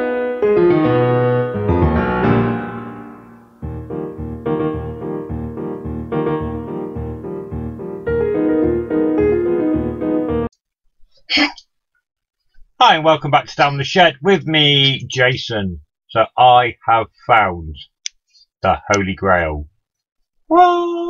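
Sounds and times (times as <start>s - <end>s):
keyboard intro music: 0.0s - 10.5s
steady bass beat: 3.6s - 7.8s.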